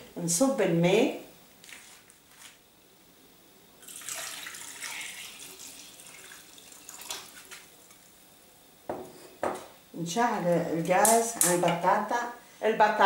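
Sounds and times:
water pouring into a saucepan: 0:03.8 - 0:07.9.

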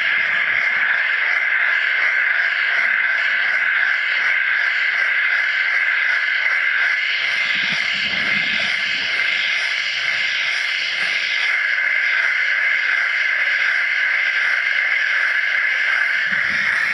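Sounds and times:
underwater water hiss: 0:07.2 - 0:16.9.

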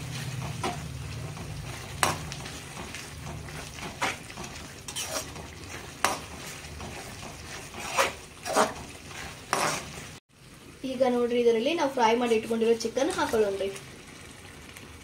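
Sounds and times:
spatula scraping a pan: 0:00.0 - 0:10.2
gravy sizzling: 0:00.0 - 0:15.0.

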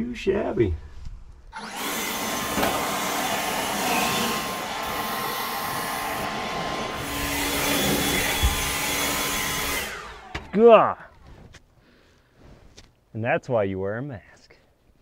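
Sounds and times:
leaf blower running: 0:01.6 - 0:10.7.

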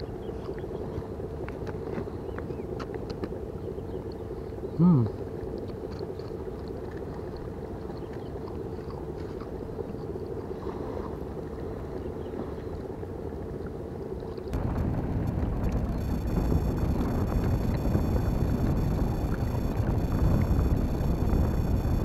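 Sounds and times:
wind noise on microphone: 0:14.5 - 0:22.0
motor drone: 0:14.6 - 0:22.0.

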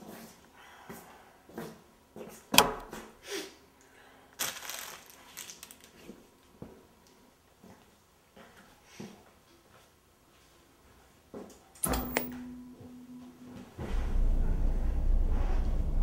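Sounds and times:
plastic wrappers crinkling: 0:04.4 - 0:06.2.

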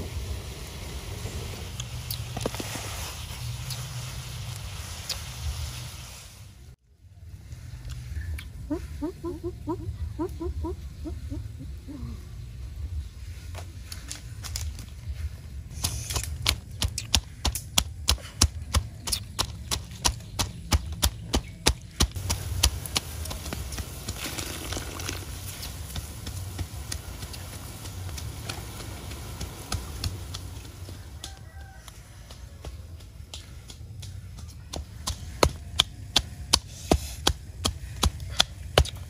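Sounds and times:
wood fire crackling: 0:00.0 - 0:06.8, 0:12.7 - 0:39.0
water boiling in a wok: 0:22.2 - 0:31.2.

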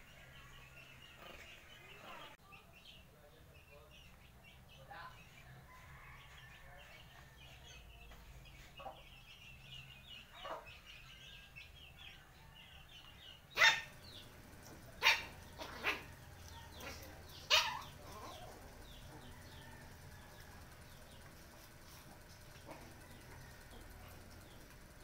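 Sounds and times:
small dogs barking: 0:10.3 - 0:10.8, 0:13.5 - 0:20.5, 0:21.5 - 0:24.7.

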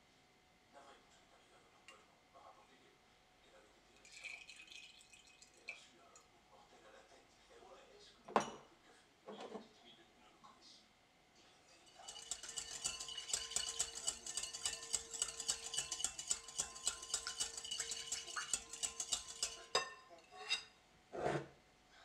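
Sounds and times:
whisk clinking against glass bowl: 0:11.7 - 0:20.7
glass bowl ringing: 0:11.8 - 0:20.6.

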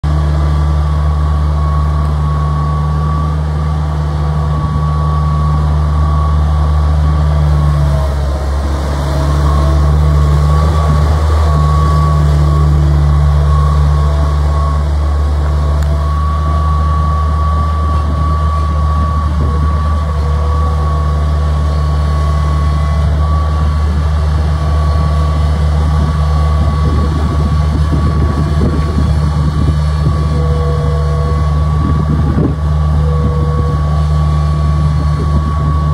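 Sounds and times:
skid steer loader engine running: 0:00.0 - 0:35.9
thin steady whine: 0:00.1 - 0:35.9.

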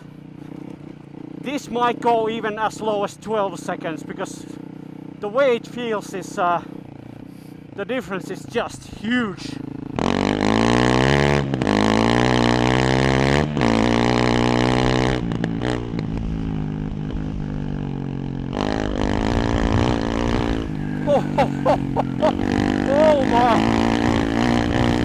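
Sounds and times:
motorcycle engine accelerating: 0:00.0 - 0:25.0.

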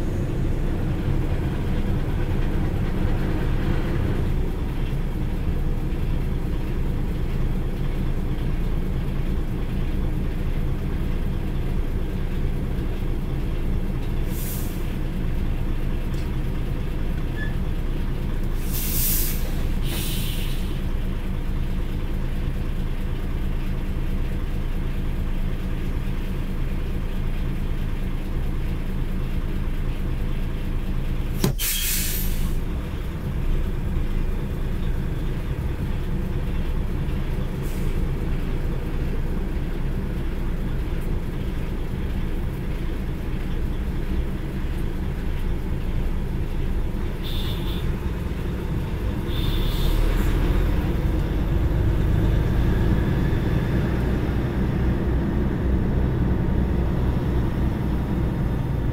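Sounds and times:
lorry diesel engine running: 0:00.0 - 0:58.9
air brakes hissing: 0:14.2 - 0:15.0, 0:18.6 - 0:20.8, 0:31.4 - 0:32.7, 0:37.6 - 0:38.1, 0:49.2 - 0:50.3.

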